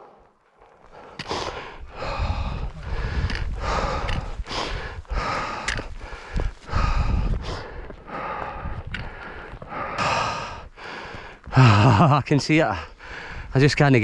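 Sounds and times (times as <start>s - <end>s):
person breathing heavily: 0.0s - 13.6s
wind rumbling on microphone: 1.3s - 10.8s.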